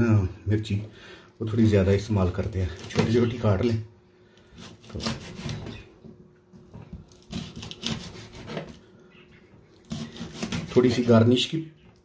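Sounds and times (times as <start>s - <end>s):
knife chopping on cutting board: 4.6s - 5.6s, 7.3s - 8.7s, 9.9s - 10.8s.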